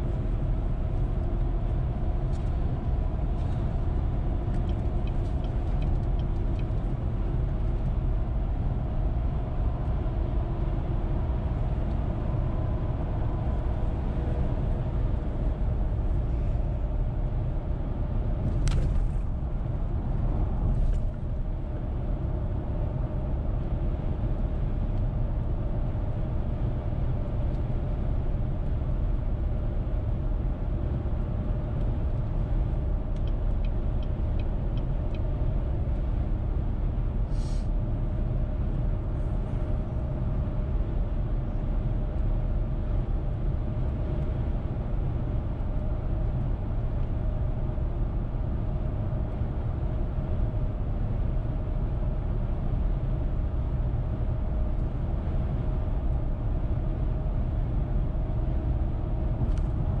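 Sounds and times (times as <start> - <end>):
car road and engine noise: 0.0 - 60.0
short hiss: 37.3 - 37.7.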